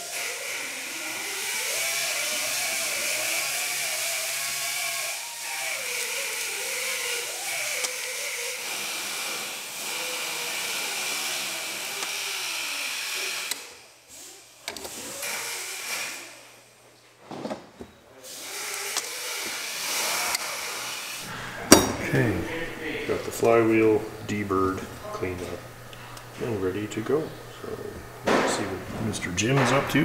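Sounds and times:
power tool motor whining: 0:00.0 - 0:16.6, 0:18.3 - 0:21.8.

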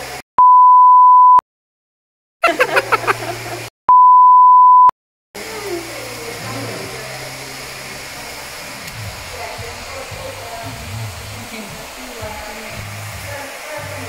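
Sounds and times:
censor bleep tone: 0:00.4 - 0:01.4, 0:03.9 - 0:04.9.

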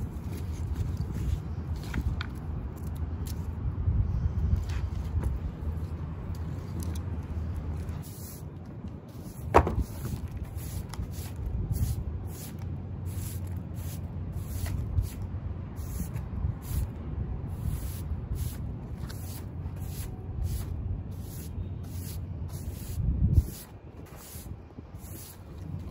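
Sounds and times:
rustling and clicking of plants: 0:00.0 - 0:03.6, 0:04.5 - 0:11.1
low city rumble: 0:00.0 - 0:25.9
dull thump: 0:09.5 - 0:10.1.

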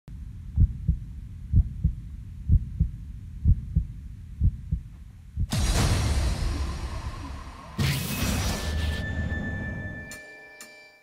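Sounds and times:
heartbeat thumps: 0:00.2 - 0:07.7
loud whoosh: 0:05.5 - 0:10.0
music: 0:05.5 - 0:11.0.

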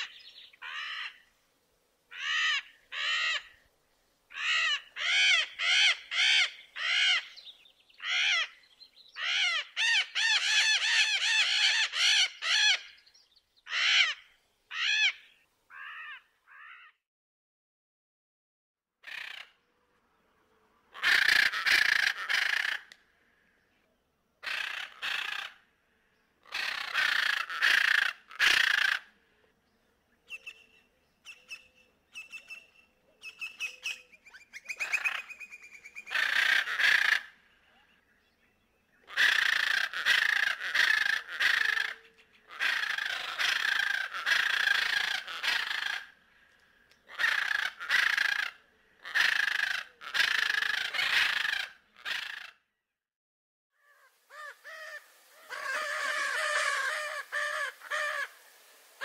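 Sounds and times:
parrot squawking: 0:04.3 - 0:07.4, 0:09.2 - 0:12.9, 0:33.8 - 0:37.3, 0:53.9 - 0:58.3.

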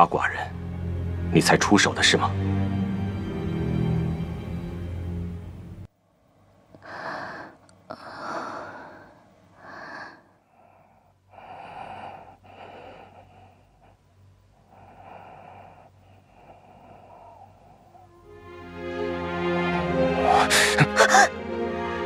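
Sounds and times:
woman gasping breaths: 0:06.8 - 0:14.1.

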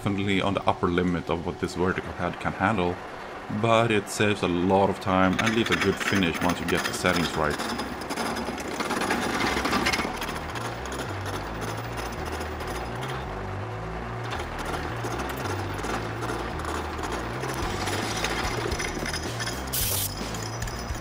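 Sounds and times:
milling cutter chattering on metal: 0:05.2 - 0:13.2, 0:14.3 - 0:21.0.

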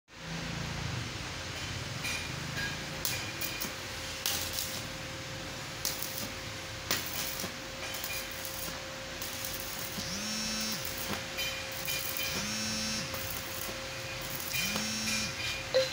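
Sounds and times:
welding arc crackling: 0:02.6 - 0:15.9
steady hum: 0:12.5 - 0:15.9.

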